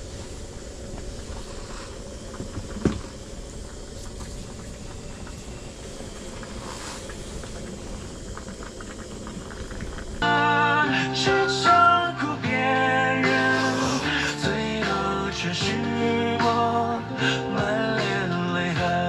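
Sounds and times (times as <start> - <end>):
stew simmering over stove flame: 0.0 - 12.6.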